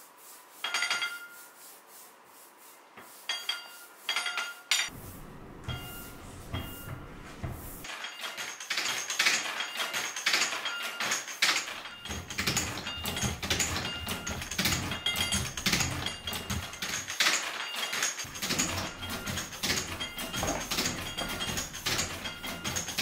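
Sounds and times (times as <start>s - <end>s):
letterpress mechanical clacks: 4.2s - 23.0s
metallic ringing clinks: 17.6s - 23.0s.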